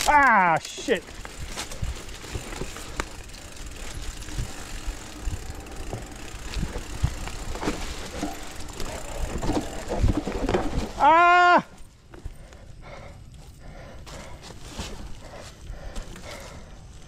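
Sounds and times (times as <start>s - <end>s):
bike rattling: 0.0s - 17.0s
bike knocking over bumps: 0.7s - 12.2s
tyres rolling over leaf litter: 5.6s - 11.3s.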